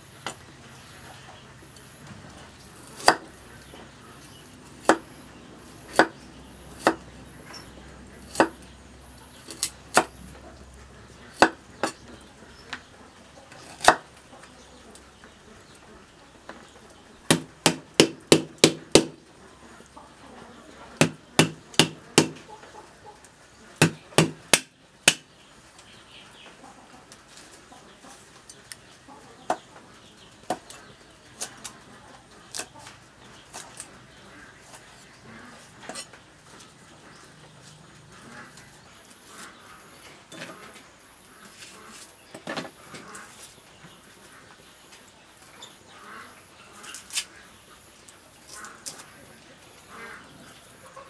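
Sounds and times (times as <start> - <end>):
cleaver chopping on wooden block: 2.9 - 3.3, 4.8 - 5.1, 5.9 - 6.2, 8.3 - 8.6, 11.4 - 12.0, 13.6 - 14.0, 17.3 - 19.2, 21.0 - 22.4, 23.8 - 25.3
hens clucking: 19.1 - 24.2, 25.3 - 51.0.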